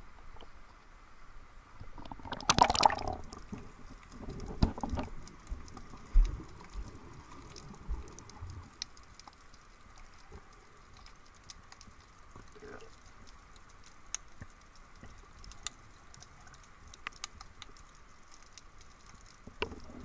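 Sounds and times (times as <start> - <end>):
splash and gurgle: 1.9 - 3.4
faint sharp clicks: 4.0 - 20.0.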